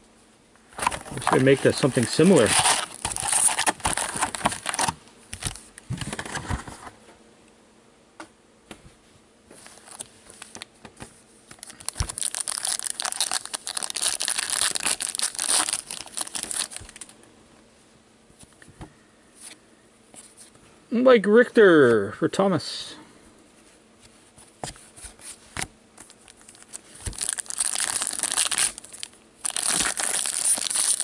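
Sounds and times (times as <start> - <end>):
card pack wrappers crinkling: 0.8 - 6.4, 9.7 - 10.7, 11.5 - 17.1, 26.0 - 31.0.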